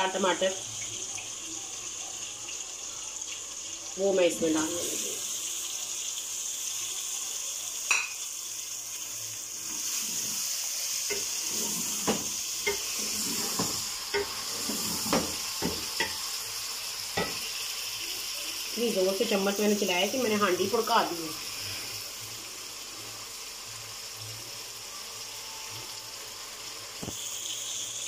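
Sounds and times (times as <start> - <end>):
food sizzling in a pot: 0.0 - 28.0
wooden spatula scraping a pot: 9.6 - 16.1.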